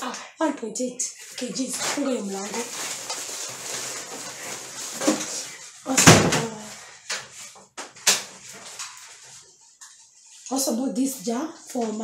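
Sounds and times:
plastic bag rustling: 1.2s - 10.8s.

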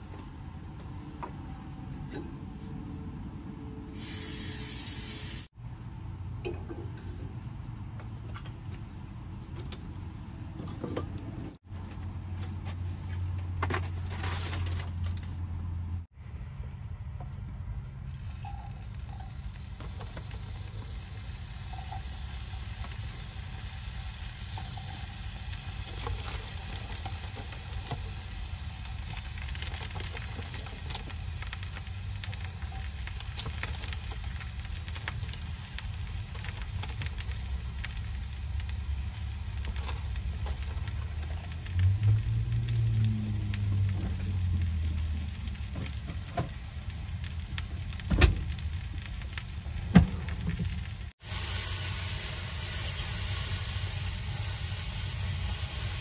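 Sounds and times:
mushrooms sizzling in a frying pan: 4.0s - 5.6s, 18.4s - 56.0s.

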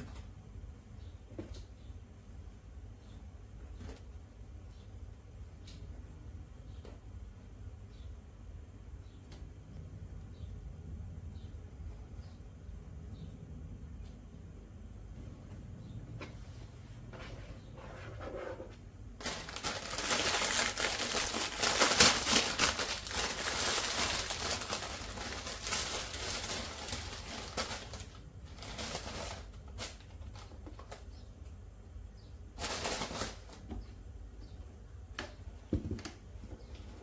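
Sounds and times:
packaging rustling and crinkling: 19.2s - 31.1s, 32.6s - 33.7s.

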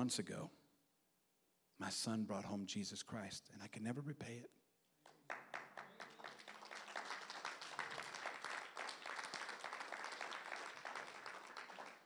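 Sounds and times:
crowd applauding: 5.0s - 12.0s.

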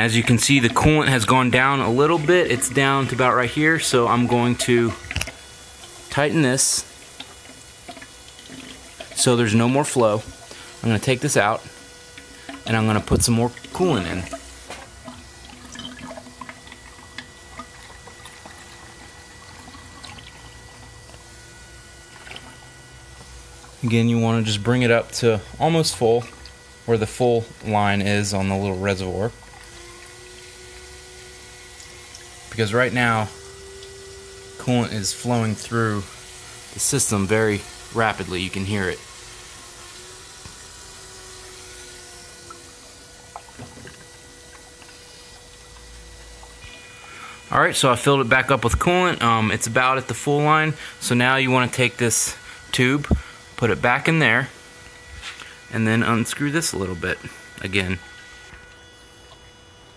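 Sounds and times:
liquid trickling: 0.0s - 26.9s, 29.0s - 47.5s
coolant rushing hiss: 0.0s - 59.9s
electric pump humming: 0.0s - 59.9s.

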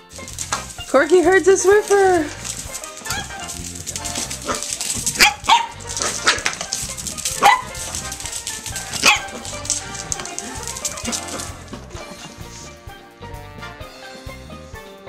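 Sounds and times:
background music: 0.0s - 15.0s
puppy barking: 0.1s - 11.7s.

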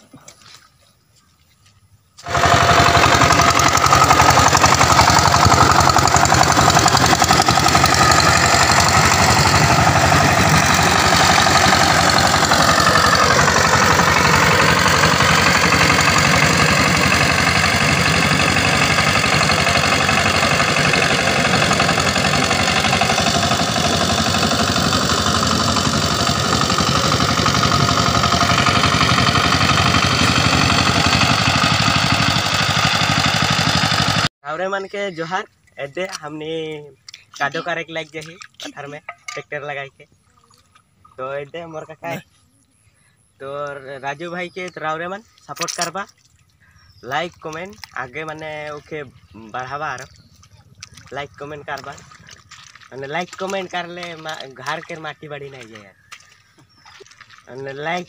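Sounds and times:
diesel tiller engine running: 2.2s - 34.3s, 46.6s - 58.0s.

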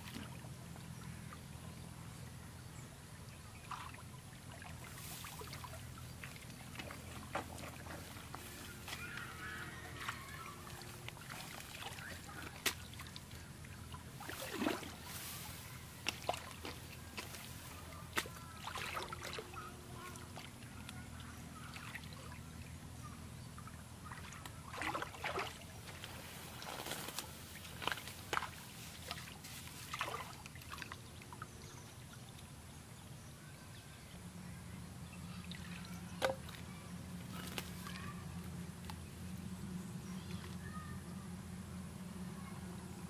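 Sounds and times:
hands sloshing muddy water: 3.6s - 22.9s, 23.6s - 31.5s.

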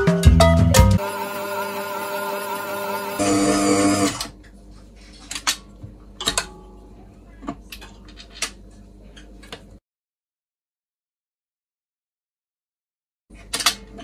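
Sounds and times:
stand mixer motor humming: 1.0s - 4.3s.

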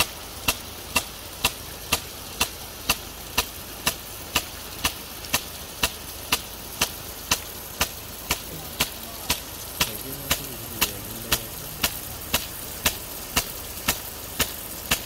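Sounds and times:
sprinkler arm clicking: 0.0s - 15.0s
water jet hissing: 0.0s - 15.0s.

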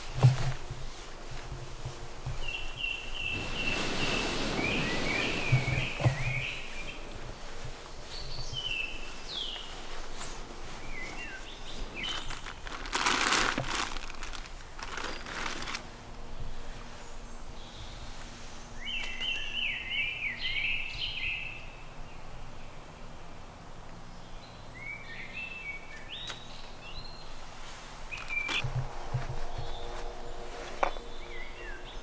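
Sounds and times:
fabric rustling: 0.0s - 15.9s
birds chirping: 1.9s - 23.4s, 24.1s - 32.0s.

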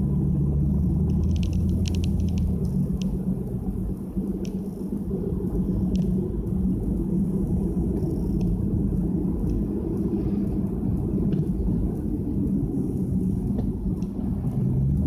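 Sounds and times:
tyre and road rumble: 0.0s - 15.0s.

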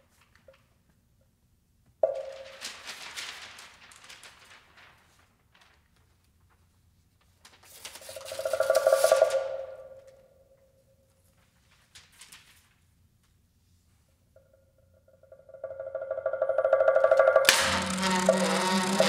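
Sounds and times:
rustling tearing noise: 2.3s - 8.4s, 11.6s - 12.8s
rattling buzz on woodblock: 8.3s - 9.6s, 15.4s - 19.0s
mallet striking woodblock: 15.6s - 18.8s.

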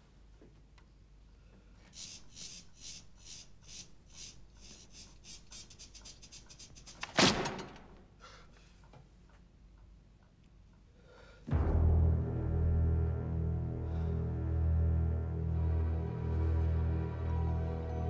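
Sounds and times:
cockroach scuttling across paper: 2.0s - 7.2s
sudden loud hit: 11.5s - 15.1s.

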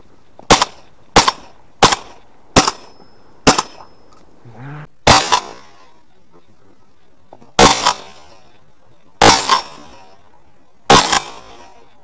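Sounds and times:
shotgun shots: 0.5s - 3.9s, 5.0s - 6.0s, 7.6s - 8.5s, 9.2s - 10.2s, 10.9s - 11.9s.

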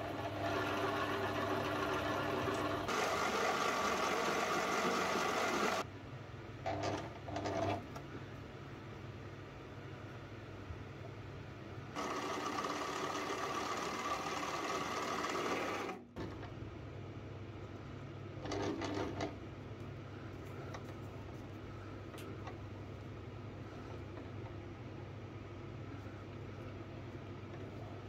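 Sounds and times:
low steady hum: 19.3s - 28.0s.

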